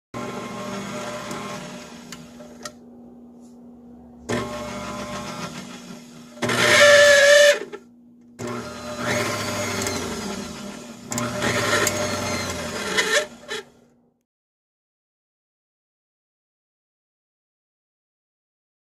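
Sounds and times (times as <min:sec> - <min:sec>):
stand mixer motor running: 0:00.2 - 0:02.8, 0:04.3 - 0:07.8, 0:08.4 - 0:13.8
high motor whine: 0:00.2 - 0:13.8.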